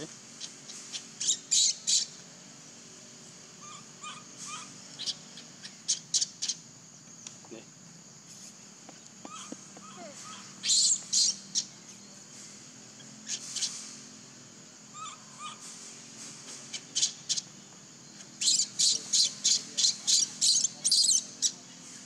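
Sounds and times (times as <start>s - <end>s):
baby monkey squeaking: 0.9s - 2.1s, 3.6s - 6.6s, 9.3s - 11.7s, 15.0s - 15.6s, 16.7s - 17.4s, 18.4s - 21.6s.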